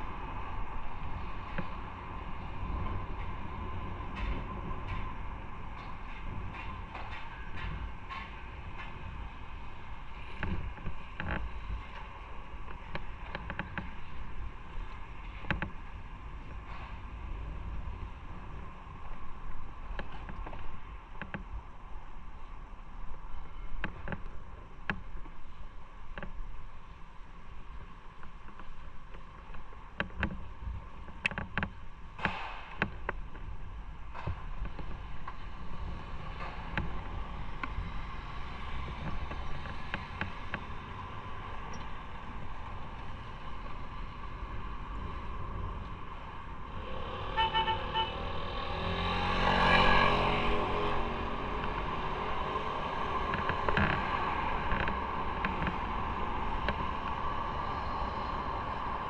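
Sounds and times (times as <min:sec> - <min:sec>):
road noise: 0:00.0 - 0:59.0
vehicle passing close by: 0:46.6 - 0:59.0
motorcycle engine: 0:46.7 - 0:54.1.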